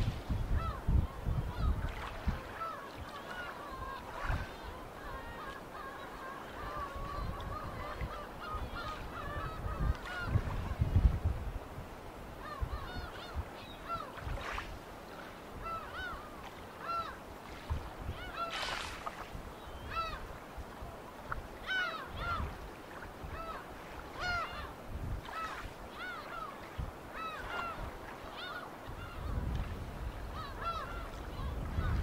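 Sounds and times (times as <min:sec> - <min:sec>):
water splashes: 0:01.6 - 0:04.6, 0:14.1 - 0:15.4, 0:16.0 - 0:19.4.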